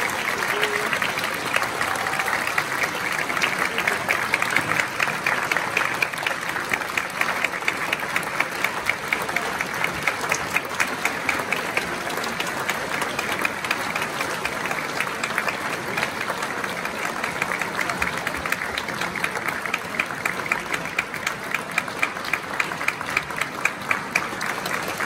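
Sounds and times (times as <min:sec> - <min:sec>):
audience applauding: 0:00.0 - 0:25.0
nearby sharp claps: 0:00.0 - 0:25.0.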